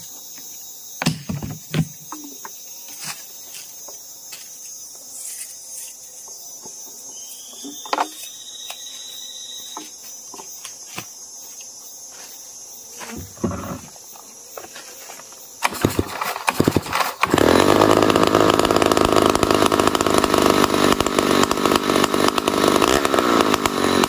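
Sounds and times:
insects chirring: 0.0 - 24.0
small knocks and clunks: 0.4 - 2.6, 6.3 - 8.3, 13.0 - 15.4.

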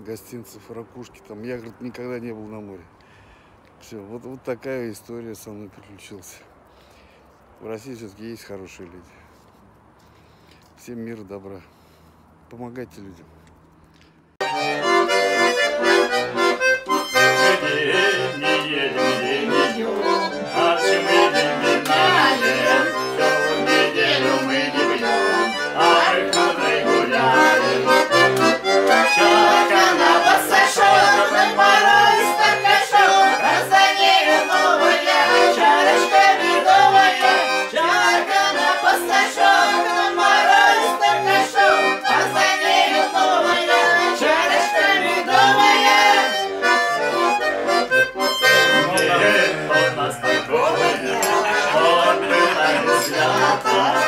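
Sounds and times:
button accordion playing: 14.4 - 54.0.

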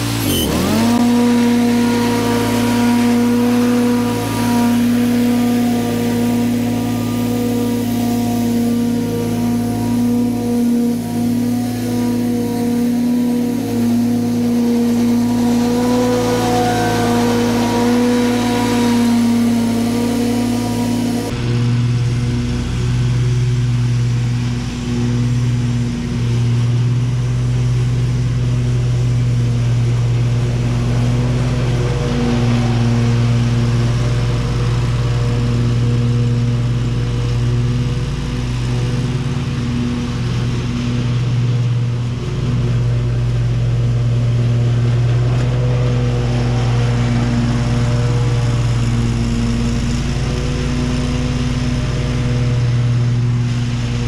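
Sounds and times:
riding lawn mower engine: 0.0 - 54.0.

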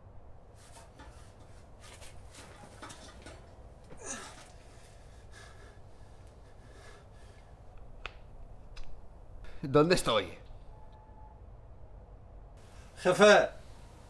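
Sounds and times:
rustling: 0.5 - 7.5
faint breathing: 3.9 - 7.8.

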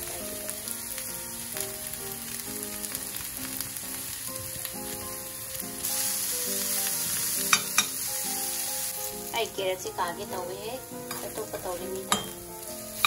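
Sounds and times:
carrots sizzling in hot oil: 0.0 - 13.0
utensil stirring in skillet: 2.8 - 9.3.

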